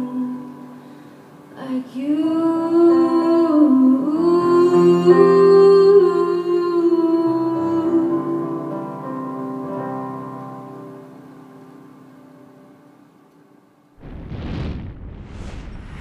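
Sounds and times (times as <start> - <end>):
woman singing wordlessly: 0.0 - 0.7, 1.6 - 9.1.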